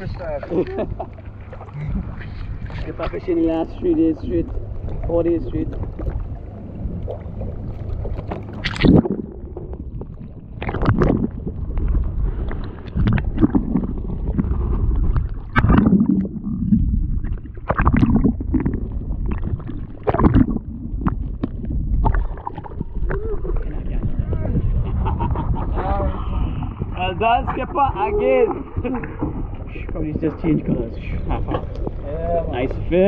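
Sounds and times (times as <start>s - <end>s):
water splashes: 0.0s - 25.2s
low rumble: 0.0s - 33.0s
water slapping boat hull: 0.0s - 33.0s.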